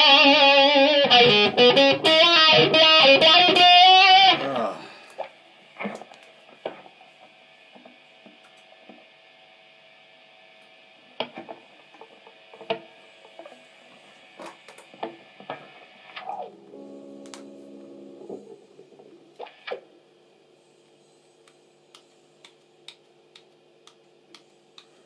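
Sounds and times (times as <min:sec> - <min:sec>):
faint amplifier hum: 0:00.0 - 0:25.0.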